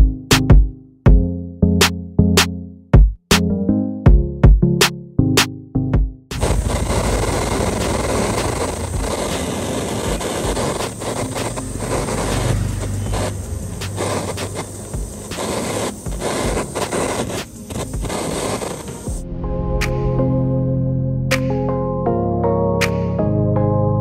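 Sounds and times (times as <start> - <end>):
gas torch flame hissing: 6.4 - 19.2.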